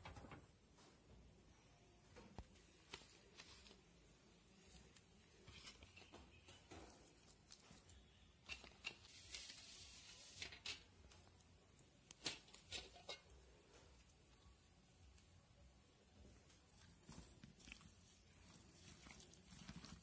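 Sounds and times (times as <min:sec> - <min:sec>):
coconut filling clicks and rustles: 0:02.4 - 0:15.3, 0:16.2 - 0:20.0
steel bowl rustling: 0:12.1 - 0:14.2, 0:16.4 - 0:20.0.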